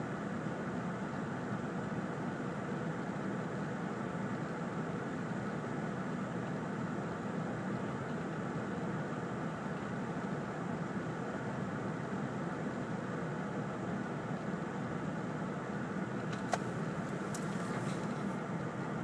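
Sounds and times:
car engine idling: 0:16.1 - 0:19.0.

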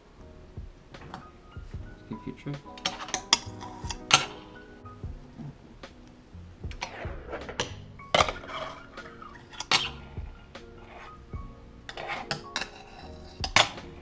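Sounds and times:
fingerboard wheels rolling: 0:06.6 - 0:14.0.

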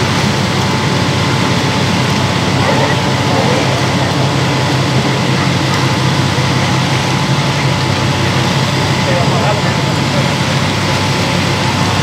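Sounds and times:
steady hissing noise: 0:00.0 - 0:09.2
low engine hum: 0:00.0 - 0:12.0.

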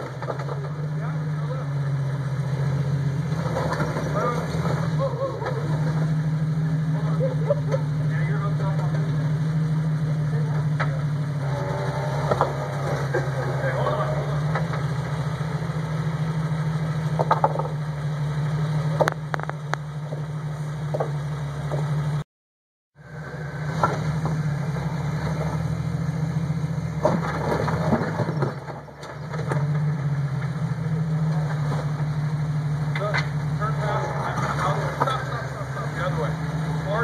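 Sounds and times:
engine running at low revs: 0:00.0 - 0:22.2, 0:23.0 - 0:37.0.

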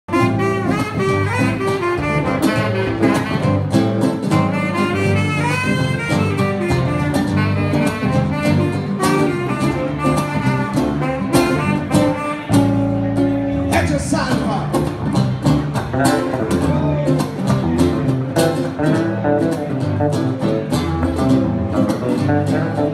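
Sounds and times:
guitar: 0:00.0 - 0:22.9
saxophone melody: 0:00.1 - 0:13.8
bass: 0:00.1 - 0:22.9.

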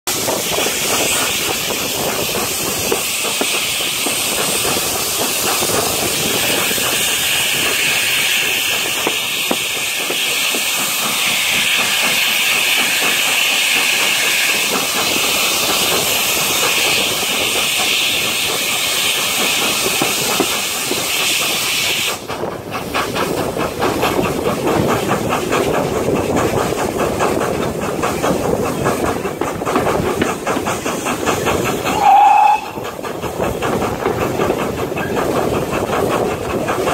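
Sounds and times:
train beat on the track: 0:00.0 - 0:36.9
steam hissing: 0:00.1 - 0:36.9.

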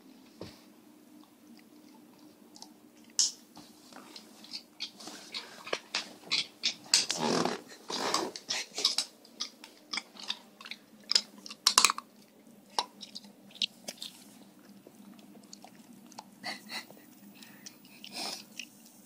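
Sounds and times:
dog cracking nut shells: 0:08.8 - 0:14.1.

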